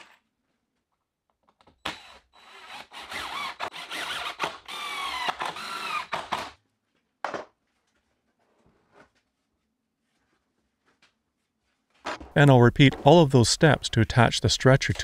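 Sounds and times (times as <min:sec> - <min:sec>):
power driver driving screws: 0:01.8 - 0:06.6.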